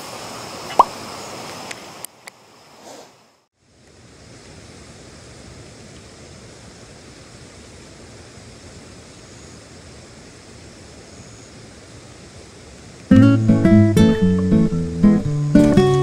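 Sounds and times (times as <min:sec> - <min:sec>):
acoustic guitar music: 0:13.1 - 0:16.0.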